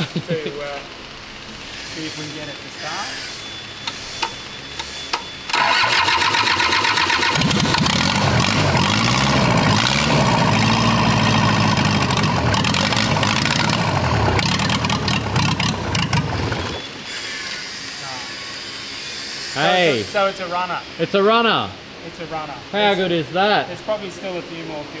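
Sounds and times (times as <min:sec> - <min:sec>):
diesel engine running unmuffled: 0:05.5 - 0:16.8
starter cranking engine: 0:05.5 - 0:16.8.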